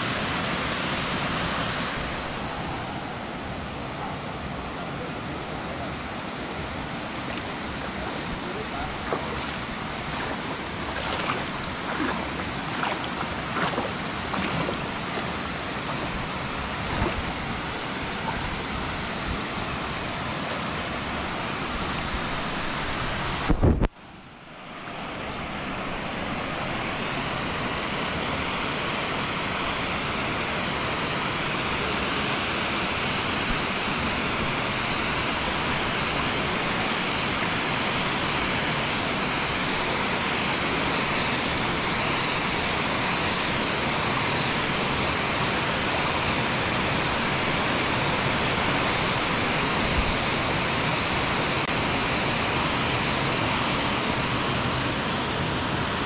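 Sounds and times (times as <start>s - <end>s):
waterfall rushing: 0.0s - 23.5s.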